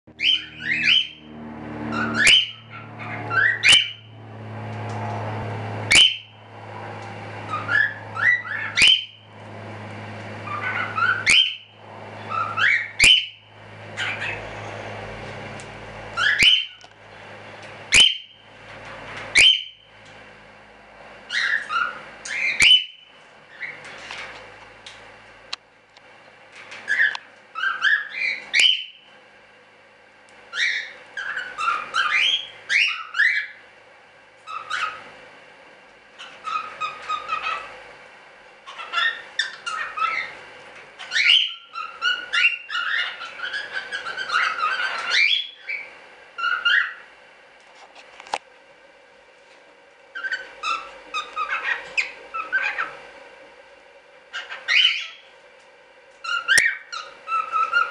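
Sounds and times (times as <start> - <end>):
cockatiels chirping: 0.2 - 1.2, 1.9 - 4.1, 5.9 - 6.3, 7.5 - 9.2, 10.4 - 14.5, 16.2 - 16.9, 17.9 - 19.8, 21.3 - 24.3, 26.8 - 29.1, 30.5 - 33.6, 34.4 - 35.1, 36.2 - 37.7, 38.6 - 40.4, 41.0 - 47.1, 50.1 - 53.0, 54.3 - 55.3, 56.2 - 57.9.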